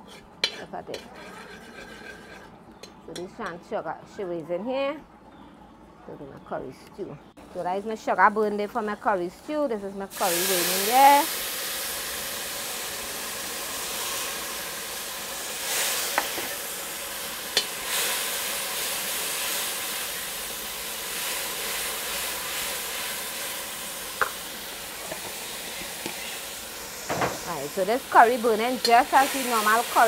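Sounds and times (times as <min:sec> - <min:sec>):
curry paste sizzling in pot: 0:10.1 - 0:30.0.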